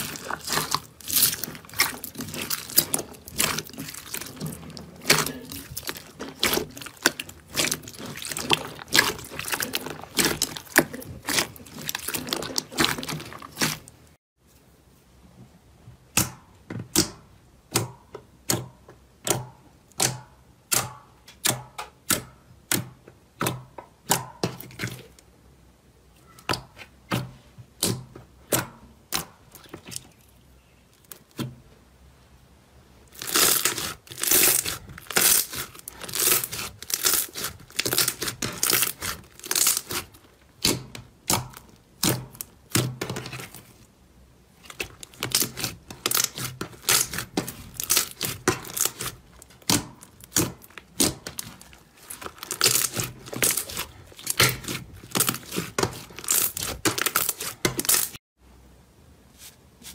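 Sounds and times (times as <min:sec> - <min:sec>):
slime popping and crackling: 0:00.0 - 0:14.1, 0:33.1 - 0:43.8, 0:44.6 - 0:58.2.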